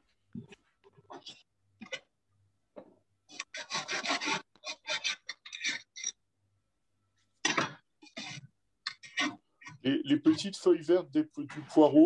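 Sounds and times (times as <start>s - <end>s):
dry rasping scrapes: 3.3s - 6.2s, 7.4s - 10.5s.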